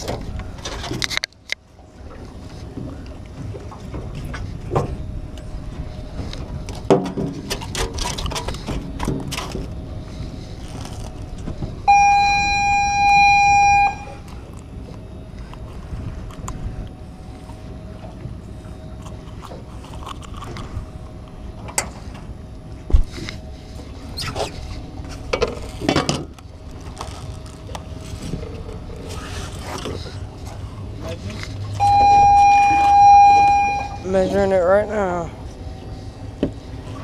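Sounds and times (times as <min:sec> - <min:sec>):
loud pitched tone: 0:11.9 - 0:14.3, 0:31.8 - 0:34.3.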